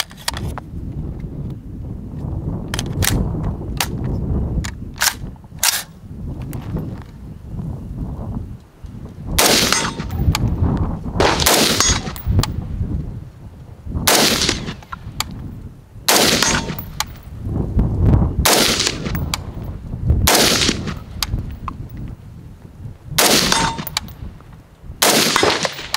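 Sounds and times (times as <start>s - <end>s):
rifle shots with echo: 9.4s - 10.3s, 11.2s - 12.4s, 14.0s - 14.9s, 16.1s - 17.2s, 18.4s - 19.4s, 20.2s - 21.1s, 23.2s - 24.1s, 25.0s - 25.9s
spent brass clinking: 16.2s - 17.2s, 23.2s - 24.2s.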